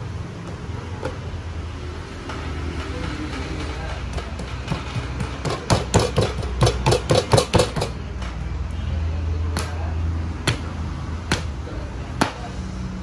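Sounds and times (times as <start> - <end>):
sharp slaps of dough: 9.5 - 11.6, 12.2 - 12.5.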